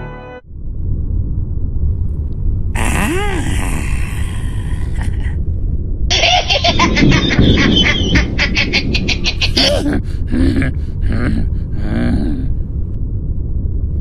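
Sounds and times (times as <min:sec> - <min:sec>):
steady low rumble: 0:00.4 - 0:14.0
cartoon creature cackle: 0:06.1 - 0:10.8.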